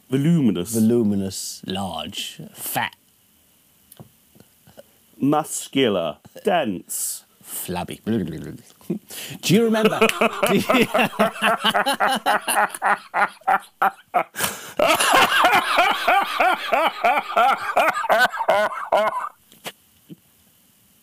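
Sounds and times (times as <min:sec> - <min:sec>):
men laughing: 0:09.8 - 0:19.4.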